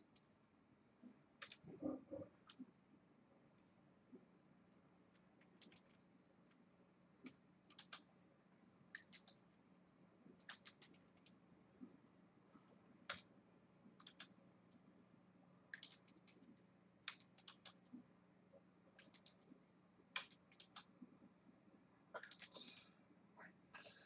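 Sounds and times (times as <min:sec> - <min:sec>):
faint keyboard typing: 0:01.0 - 0:02.7, 0:05.0 - 0:08.1, 0:08.9 - 0:09.6, 0:10.3 - 0:12.0, 0:13.0 - 0:14.8, 0:15.7 - 0:24.0.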